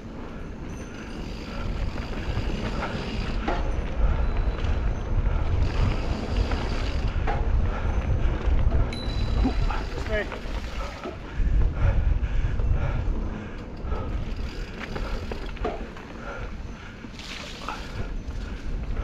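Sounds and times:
bike rattles and creaks: 0:00.0 - 0:19.0
wind buffeting microphone: 0:00.0 - 0:19.0
tyres running over dirt: 0:00.5 - 0:11.4, 0:13.1 - 0:19.0.

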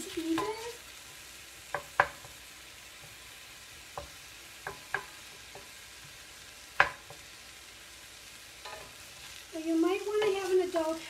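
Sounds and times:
faint steady hiss: 0:00.0 - 0:11.0
spatula knocking on skillet: 0:00.3 - 0:00.7, 0:01.6 - 0:07.4, 0:08.6 - 0:09.1, 0:10.0 - 0:10.5.

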